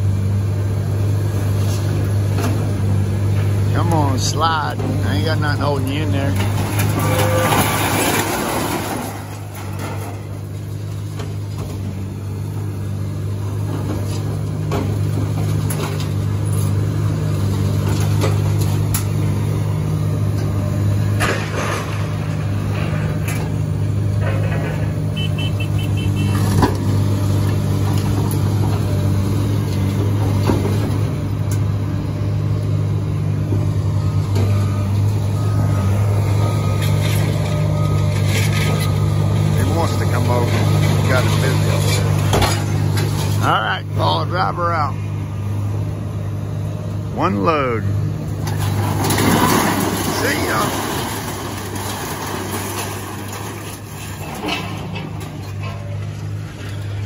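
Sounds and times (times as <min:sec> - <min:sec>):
truck engine running: 0:00.0 - 0:57.0
scrap metal clanking: 0:06.2 - 0:10.4, 0:48.4 - 0:57.0.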